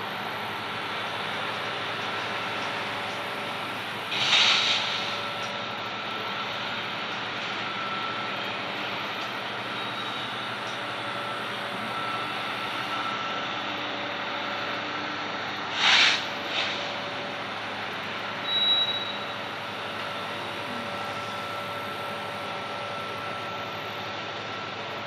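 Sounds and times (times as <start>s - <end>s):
freight train rolling on rails: 0.0s - 25.0s
loud burst of noise: 3.5s - 6.1s, 15.7s - 17.8s.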